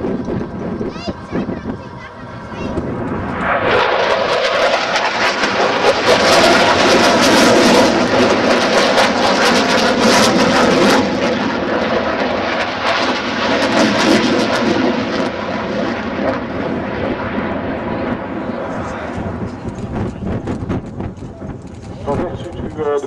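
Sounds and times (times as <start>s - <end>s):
aircraft engine passing overhead: 0.0s - 23.0s.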